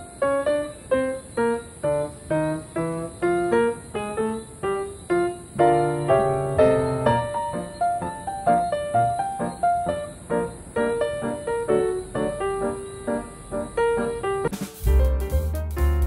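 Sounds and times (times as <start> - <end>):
piano melody: 0.0 - 16.0.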